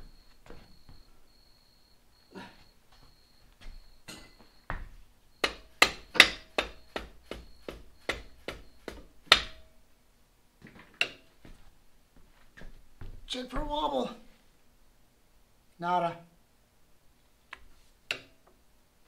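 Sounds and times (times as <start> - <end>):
hammer striking metal axle: 4.0 - 4.5, 5.4 - 9.7.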